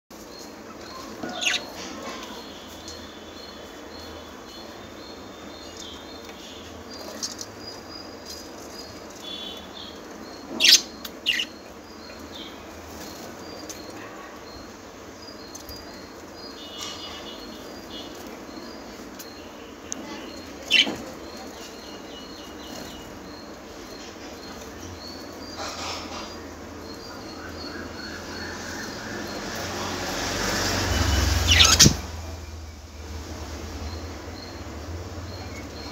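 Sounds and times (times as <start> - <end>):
budgerigars chirping and warbling: 0.6 - 3.0, 6.6 - 14.7, 20.0 - 30.0, 30.9 - 32.1.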